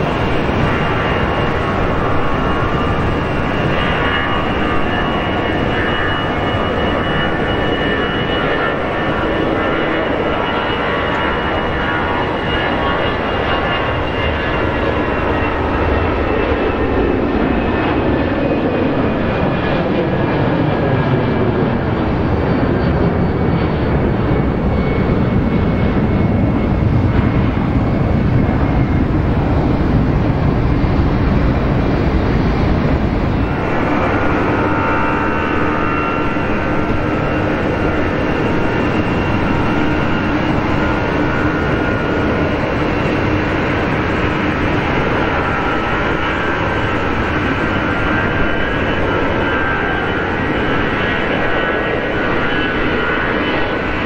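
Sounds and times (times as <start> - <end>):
jet airliner taking off: 0.0 - 54.0
jet engines running on runway: 0.0 - 54.0.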